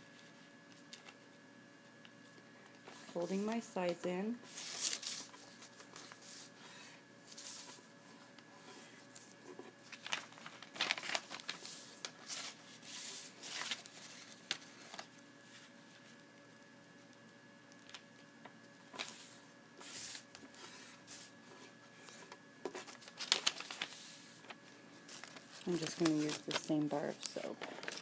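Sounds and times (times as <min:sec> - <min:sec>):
faint electrical hum: 0:00.0 - 0:28.0
paper rustling on wooden table: 0:04.5 - 0:07.9, 0:08.6 - 0:15.7, 0:18.9 - 0:21.3, 0:22.0 - 0:28.0.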